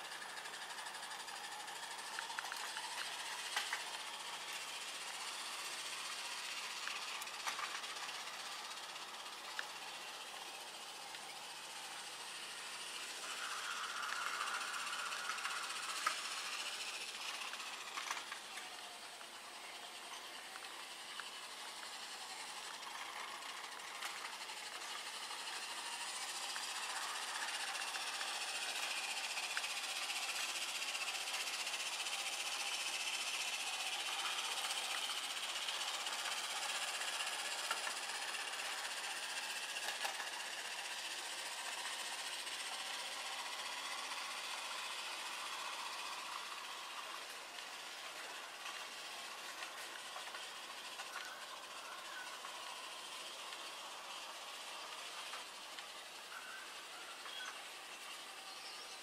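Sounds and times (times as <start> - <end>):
model tram whirring: 0.0 - 59.0.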